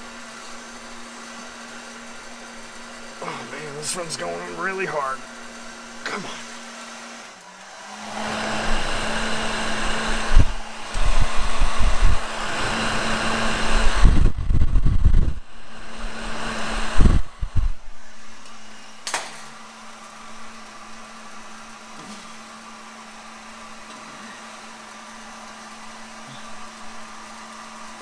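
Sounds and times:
heat gun blowing: 0.0s - 28.0s.

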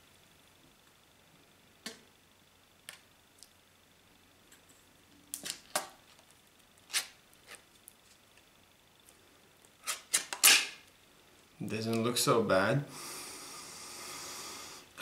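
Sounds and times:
can lid tearing crack: 6.8s - 7.6s, 9.8s - 10.8s.

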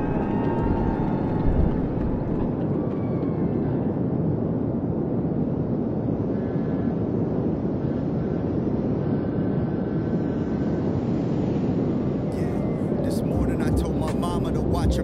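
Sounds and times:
low rumbling drone: 12.2s - 15.0s.

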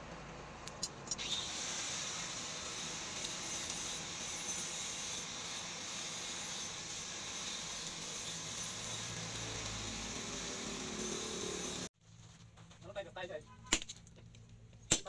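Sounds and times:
forge fire hissing: 1.2s - 11.9s.

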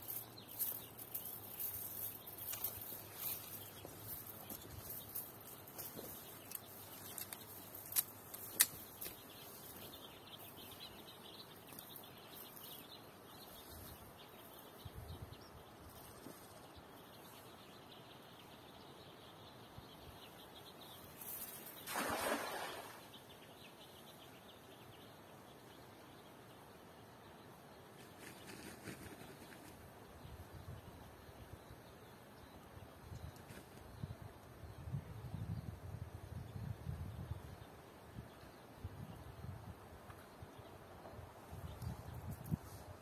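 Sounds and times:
cast net splashing into river: 21.8s - 23.1s.

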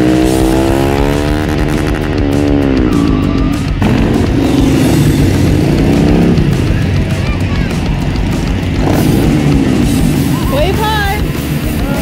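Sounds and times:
motorcycles riding past: 0.0s - 12.0s.

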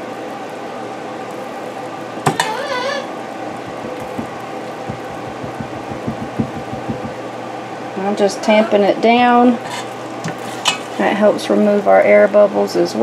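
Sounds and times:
steady hum: 3.2s - 7.8s
spoon tapping in glass jars: 3.7s - 7.2s.

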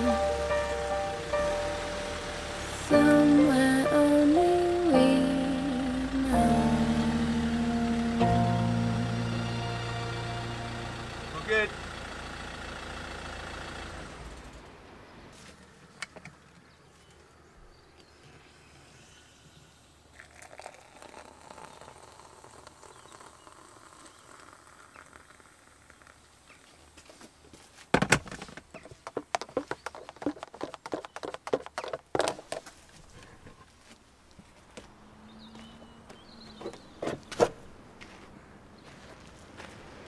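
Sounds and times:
water poured into a mug: 20.1s - 25.4s.

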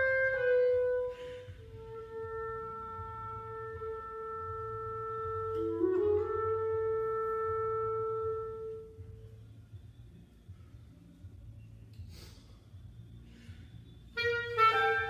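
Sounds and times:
solo clarinet: 0.0s - 9.5s, 14.0s - 15.0s.

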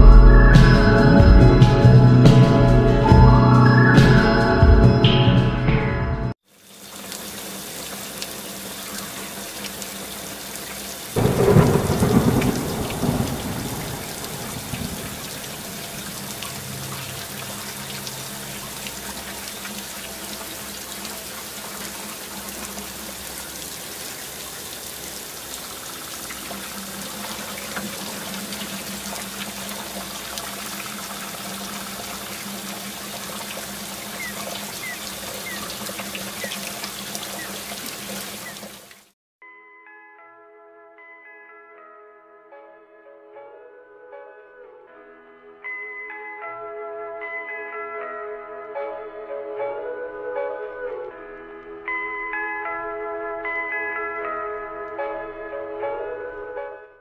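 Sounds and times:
steady rain: 6.5s - 39.1s
thunder rumble: 11.2s - 17.6s.

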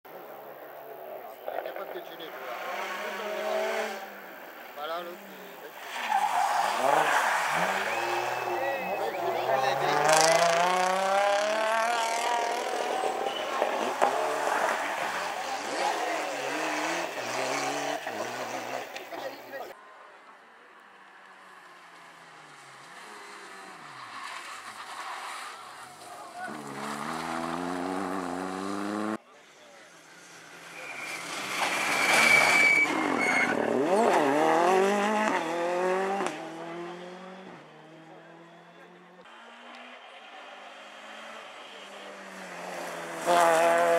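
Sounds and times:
second rally car engine revving: 2.3s - 4.3s, 6.8s - 19.3s, 26.5s - 29.2s, 31.5s - 39.9s, 40.8s - 43.9s
rally car engine accelerating: 6.7s - 19.3s, 26.4s - 29.2s, 30.7s - 43.9s.

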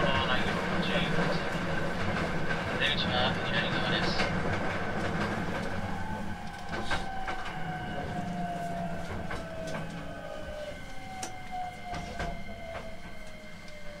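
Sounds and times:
train rumble: 0.0s - 14.0s
train motor whine: 5.7s - 14.0s.

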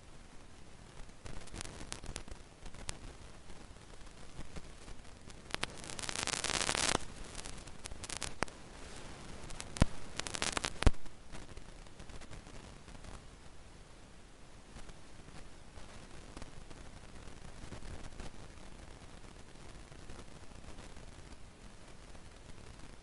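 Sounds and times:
rustling: 0.8s - 13.3s
burst of hiss: 5.3s - 11.1s.

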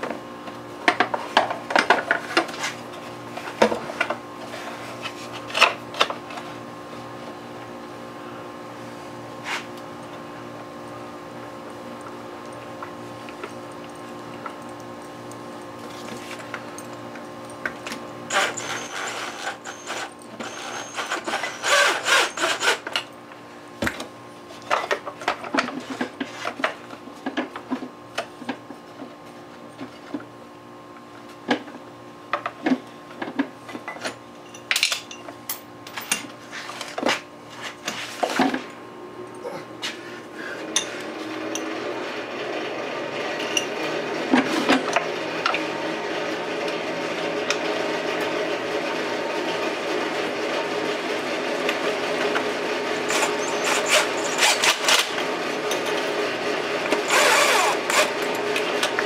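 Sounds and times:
tools and parts clicking and knocking: 32.3s - 37.1s, 53.1s - 56.1s.

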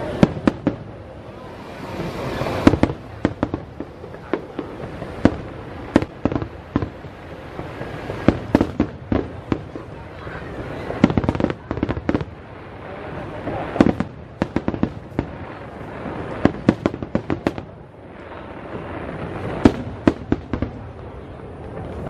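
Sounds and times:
fireworks bangs and pops: 0.0s - 22.0s.

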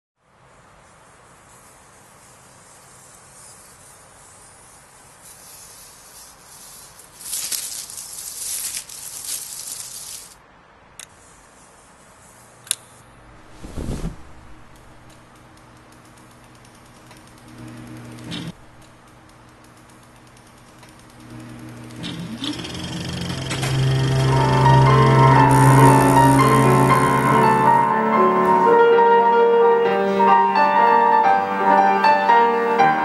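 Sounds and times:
steady hiss: 0.2s - 29.5s
crackling hiss: 0.5s - 29.0s
sharp clicks: 14.7s - 24.2s.

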